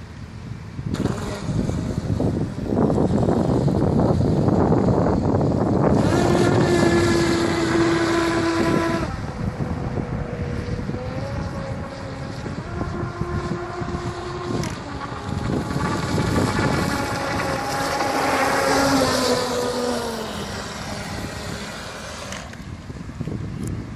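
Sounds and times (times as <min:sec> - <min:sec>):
wind rumbling on microphone: 0:00.0 - 0:23.9
electric motor whining: 0:00.9 - 0:22.9.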